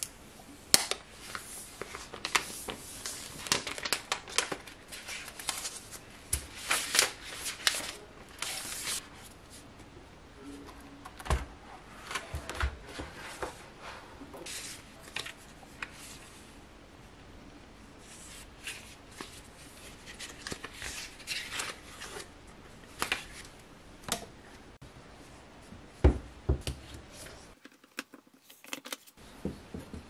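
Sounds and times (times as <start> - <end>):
packaging rustling and crinkling: 0.7 - 9.0.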